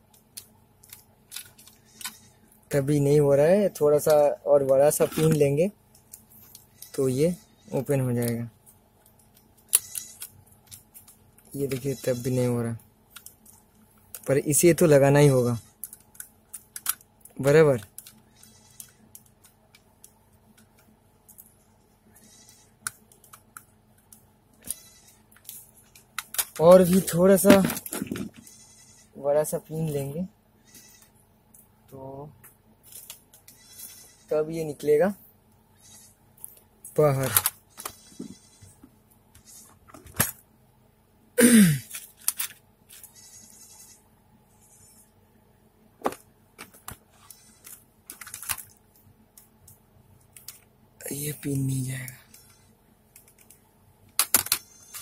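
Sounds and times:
small parts rattling in plastic organizer: 0:25.4 - 0:28.4, 0:41.9 - 0:43.1, 0:47.6 - 0:48.8.

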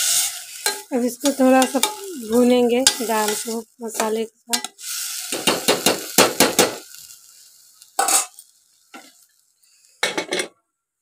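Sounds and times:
steel spoon stirring and scraping: 0:00.0 - 0:05.6
lentils sizzling in oil: 0:00.0 - 0:10.0.

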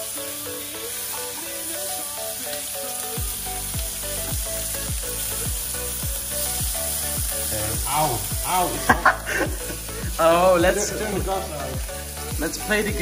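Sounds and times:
background music: 0:00.0 - 0:13.0
bacon sizzling: 0:00.0 - 0:13.0
kick drum beat: 0:03.2 - 0:07.3, 0:08.3 - 0:13.0.

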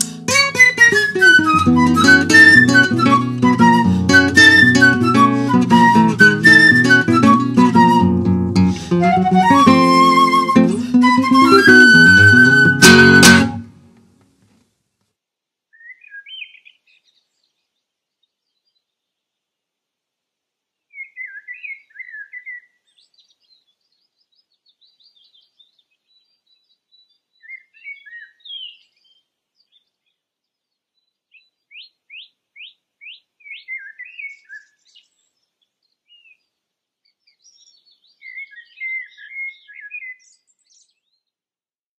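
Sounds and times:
songbirds singing: 0:15.8 - 0:19.2, 0:20.9 - 0:41.4.

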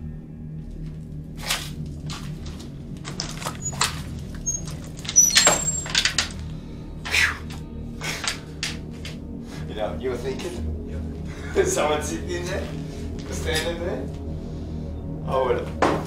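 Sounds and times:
short high squeaks: 0:03.1 - 0:06.4.

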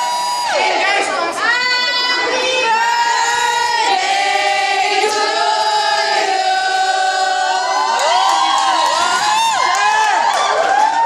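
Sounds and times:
crowd singing in unison: 0:00.0 - 0:08.3.

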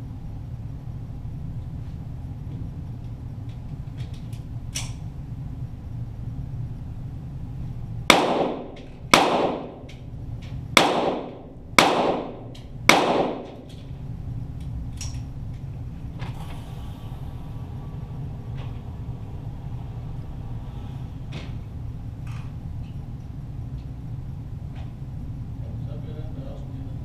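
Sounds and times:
pistol shots: 0:08.1 - 0:09.9, 0:10.8 - 0:13.7.

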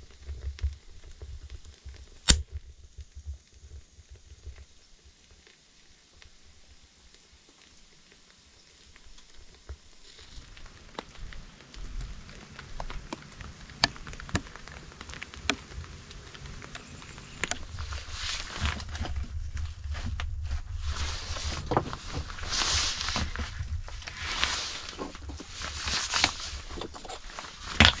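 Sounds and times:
wood fire crackling and popping: 0:00.0 - 0:28.0
firewood knocking and scraping: 0:16.4 - 0:28.0.

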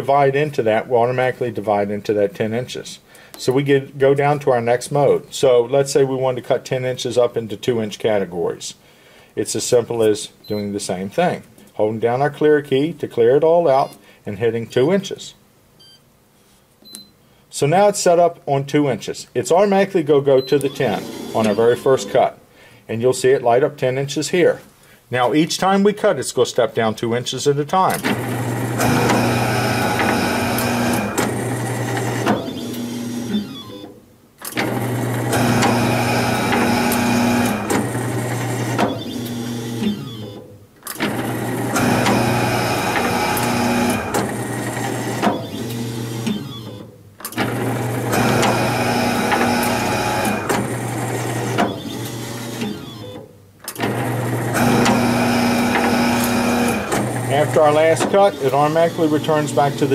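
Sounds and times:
high machine tone: 0:20.4 - 0:22.1, 0:32.3 - 0:33.9
paper cutter motor hum: 0:20.6 - 0:22.1, 0:28.1 - 0:33.9, 0:34.6 - 0:40.4, 0:41.0 - 0:53.2, 0:53.8 - 0:59.9.

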